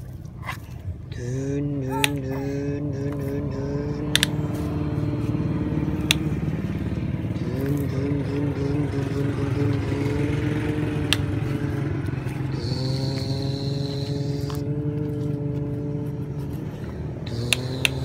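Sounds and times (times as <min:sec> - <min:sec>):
engine running: 0:00.0 - 0:18.0
sharp clicks: 0:04.1 - 0:04.4, 0:17.3 - 0:18.0.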